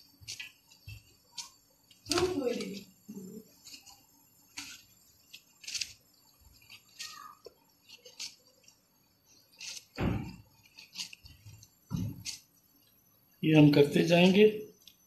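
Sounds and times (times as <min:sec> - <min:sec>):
flatbread tearing and crackling: 0:00.0 - 0:13.0
crunch and thump: 0:09.6 - 0:11.1, 0:11.9 - 0:12.4.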